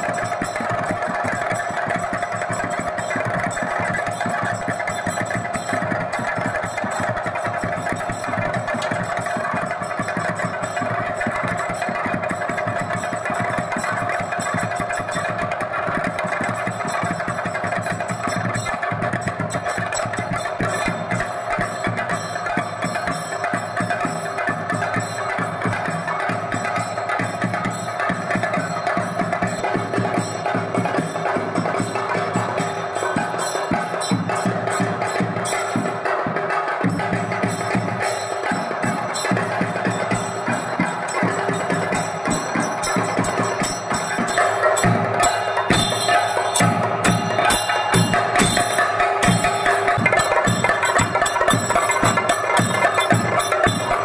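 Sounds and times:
fast drumming: 0.0 - 54.0
steady ringing tone: 37.4 - 54.0.

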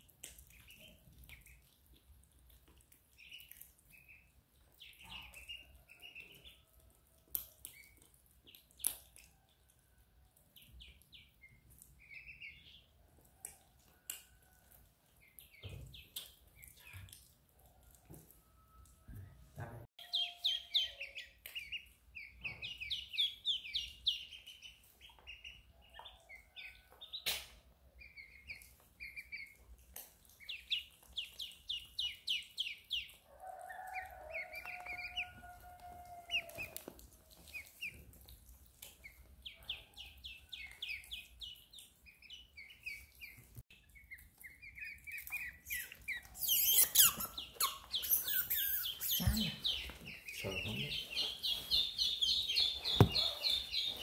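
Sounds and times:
otter chirping: 44.1 - 54.0.

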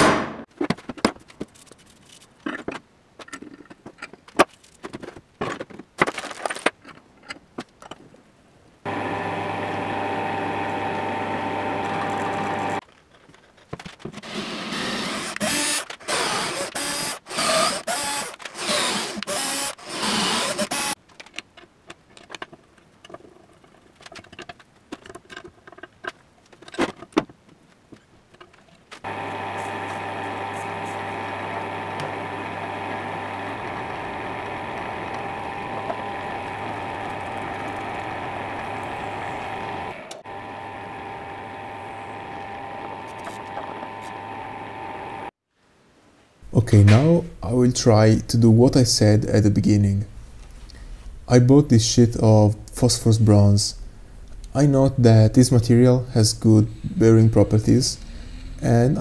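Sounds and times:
drill press humming: 8.9 - 12.8, 14.2 - 21.0, 29.0 - 45.3
cordless drill on steel: 14.3 - 21.0, 29.0 - 45.3.

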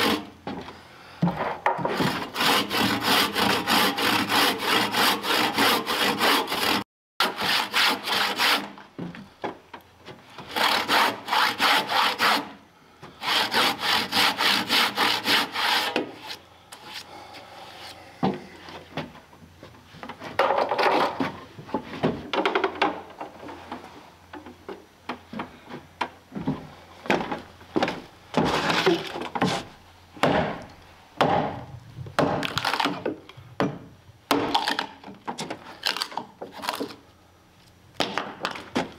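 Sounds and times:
hand saw cutting log: 0.0 - 0.4, 1.6 - 8.8, 10.4 - 12.6, 13.2 - 17.1
wood scraping and knocking: 0.4 - 2.3, 18.2 - 30.6.

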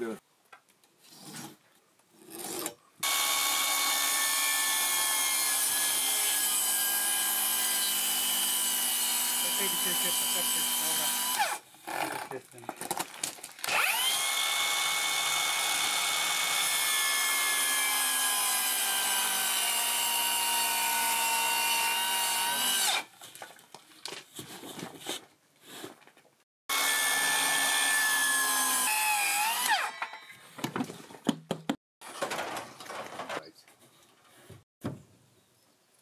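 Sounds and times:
circular saw cutting wood board: 3.0 - 11.6, 13.7 - 23.1, 26.7 - 30.3.

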